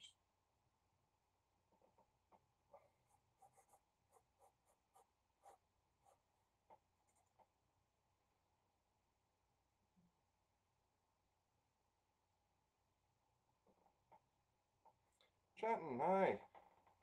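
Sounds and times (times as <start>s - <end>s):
marker scratching on paper: 2.8s - 7.5s.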